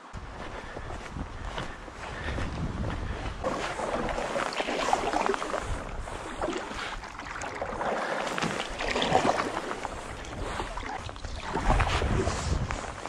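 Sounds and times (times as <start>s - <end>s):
wind on microphone: 0.0s - 13.0s
paddle splashing water: 3.4s - 13.0s.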